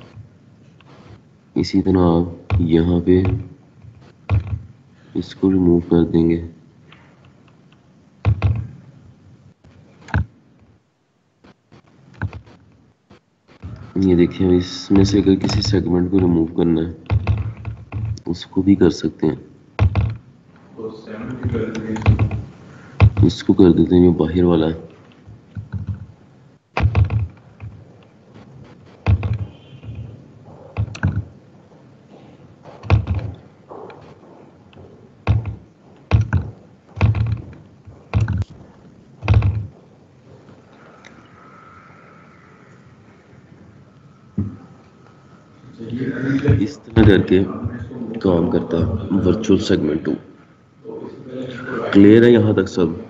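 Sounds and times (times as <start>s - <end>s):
dull knocks: 2.4s - 4.8s, 8.2s - 8.7s, 17.0s - 18.3s, 19.8s - 20.3s, 21.4s - 23.4s, 26.8s - 27.9s, 29.0s - 31.4s, 32.6s - 34.5s, 35.1s - 39.9s
faint clicks: 40.5s - 42.9s.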